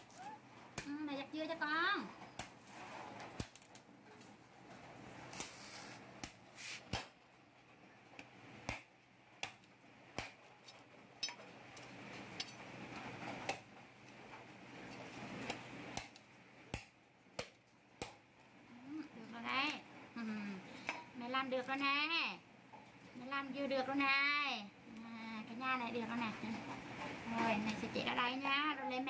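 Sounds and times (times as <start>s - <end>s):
knife chopping coconut husk: 6.2s - 7.2s, 8.2s - 10.6s, 15.4s - 18.3s.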